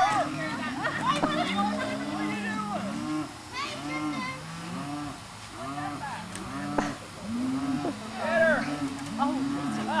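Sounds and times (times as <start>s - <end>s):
farm animals calling: 0.0s - 10.0s.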